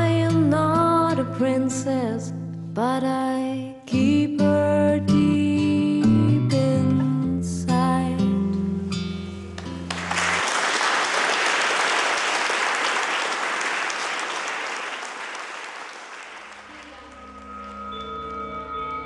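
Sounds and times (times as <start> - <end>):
audience applauding: 9.8 - 17.4
soft music with ringing tones: 16.8 - 19.0.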